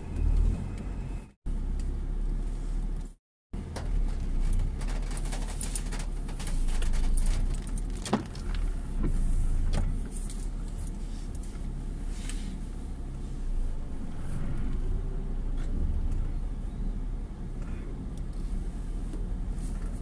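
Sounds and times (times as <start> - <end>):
car engine humming from cabin: 0.0 - 20.0
clicks and crackles: 4.1 - 8.7.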